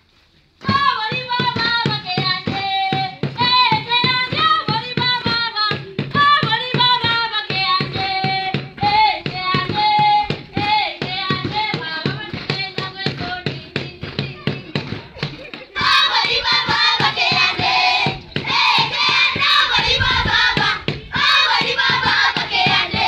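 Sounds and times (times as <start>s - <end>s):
percussive beat: 0.6s - 23.0s
children singing together: 15.7s - 23.0s.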